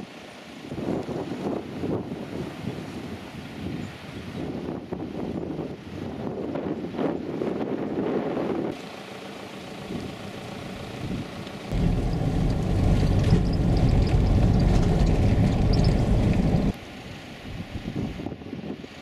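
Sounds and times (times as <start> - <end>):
wind noise: 0.6 - 8.8, 11.0 - 19.0
vehicle engine and road noise: 8.7 - 17.7.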